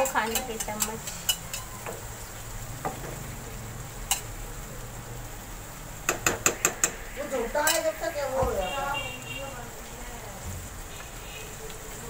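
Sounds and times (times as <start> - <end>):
steel spoon tapping a pan: 0.0 - 2.1, 4.0 - 4.4, 6.0 - 8.0
masala sizzling in a wok: 0.0 - 12.0.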